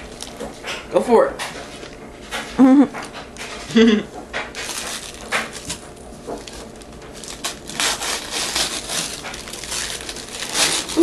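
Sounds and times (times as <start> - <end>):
wrapping paper rustling: 4.5 - 11.0.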